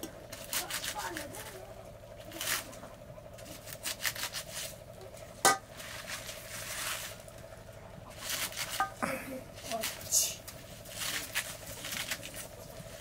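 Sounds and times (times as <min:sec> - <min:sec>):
leafy greens tearing by hand: 0:00.0 - 0:01.6, 0:02.2 - 0:02.8, 0:03.4 - 0:04.8, 0:08.1 - 0:08.9, 0:09.6 - 0:13.0
leaves snapping: 0:09.8 - 0:12.5.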